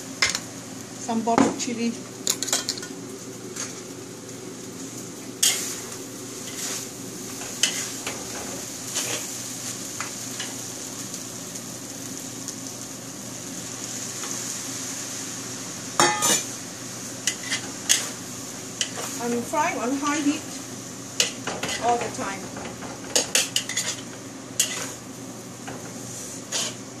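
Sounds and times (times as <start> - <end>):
noodles sizzling in a wok: 0.0 - 27.0
utensils scraping a pan: 5.4 - 5.8, 6.4 - 9.3, 16.0 - 16.5, 17.2 - 18.2, 21.2 - 25.0, 26.1 - 26.8.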